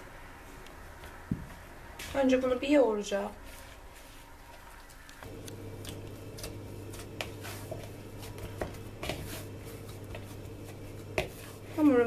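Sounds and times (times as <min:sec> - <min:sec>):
hands kneading dough: 0:03.1 - 0:12.0.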